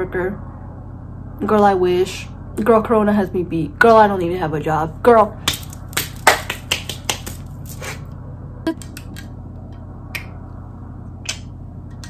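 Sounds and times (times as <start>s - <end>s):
low room hum: 0.0s - 12.0s
finger snaps: 11.2s - 11.5s.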